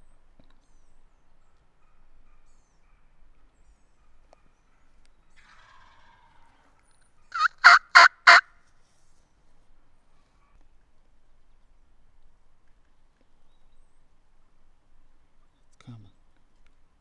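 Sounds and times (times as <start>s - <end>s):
faint bird call: 7.3s - 8.4s
turkey gobbling: 7.3s - 8.4s.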